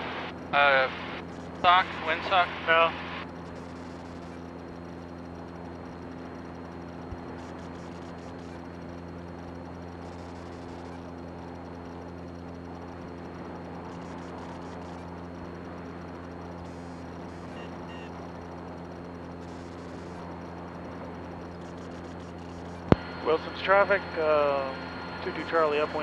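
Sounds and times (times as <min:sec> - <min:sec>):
propeller plane engine droning: 0:00.0 - 0:26.0.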